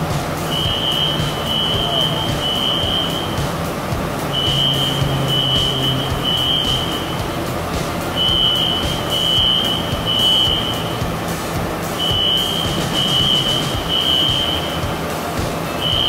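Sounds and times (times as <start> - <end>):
fire alarm beeping: 0.5 - 3.5, 4.3 - 7.2, 8.2 - 10.9, 12.0 - 14.8.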